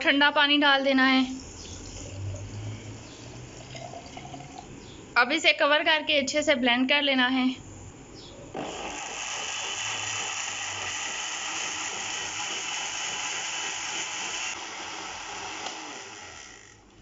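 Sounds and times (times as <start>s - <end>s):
blender motor whine: 8.6s - 17.0s.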